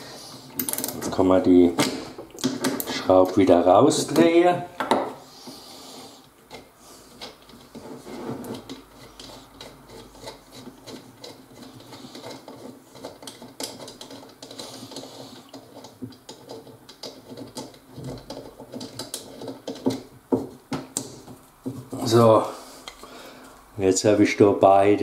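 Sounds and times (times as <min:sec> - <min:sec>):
bolt threads scraping: 0:06.5 - 0:23.0.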